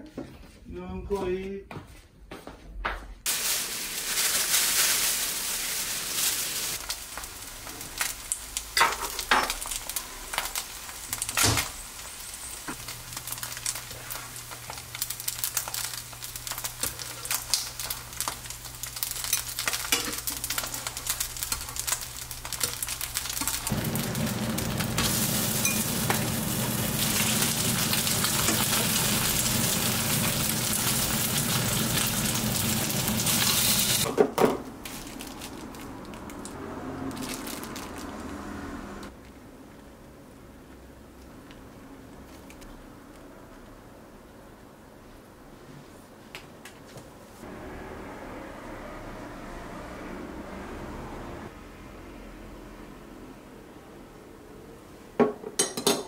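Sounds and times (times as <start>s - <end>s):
dumplings sizzling in oil: 3.3s - 34.1s.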